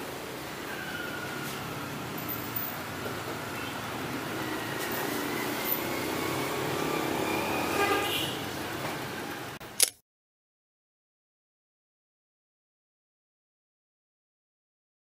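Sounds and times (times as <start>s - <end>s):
street traffic: 0.0s - 9.9s.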